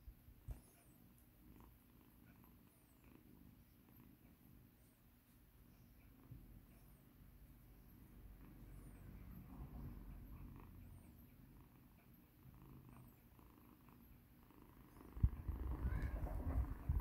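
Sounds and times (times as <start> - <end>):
kitten purring: 0.4 - 4.6, 8.0 - 17.0.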